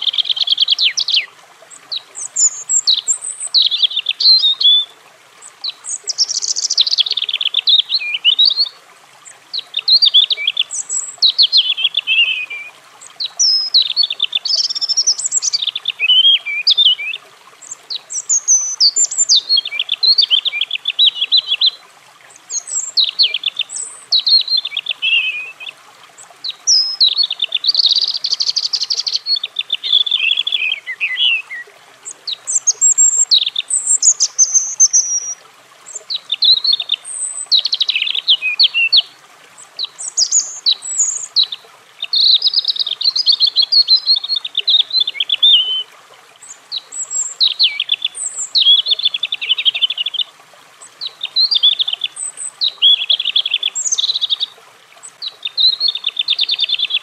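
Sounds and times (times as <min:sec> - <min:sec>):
robin singing warbling phrases: 0:00.0 - 0:01.3, 0:01.9 - 0:05.0, 0:05.6 - 0:25.8, 0:26.4 - 0:57.0.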